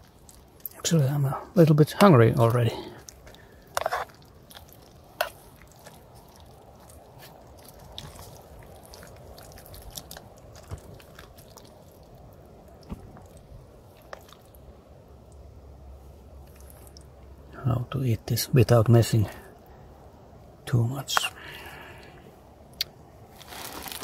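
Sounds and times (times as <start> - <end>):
person chewing: 0.0 - 0.8, 2.5 - 14.7, 16.4 - 17.2.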